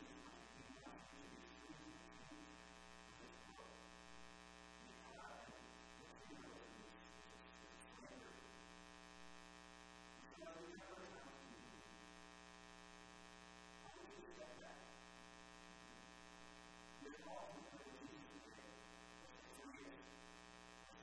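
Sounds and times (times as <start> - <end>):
faint indistinct speech: 0.0 - 4.0, 4.8 - 8.6, 10.2 - 12.0, 13.8 - 15.0, 17.0 - 21.0
electrical hum and buzz: 0.0 - 21.0.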